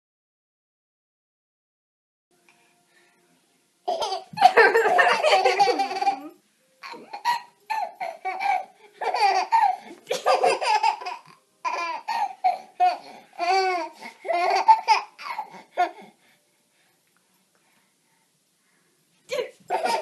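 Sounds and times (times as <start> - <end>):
baby laughing and squealing: 3.9 - 16.0, 19.7 - 20.0.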